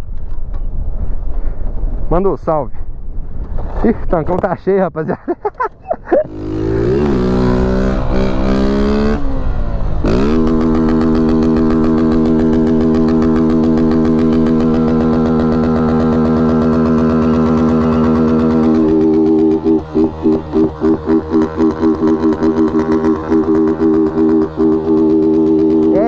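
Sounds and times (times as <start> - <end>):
motorcycle engine revving loud: 6.3 - 26.0.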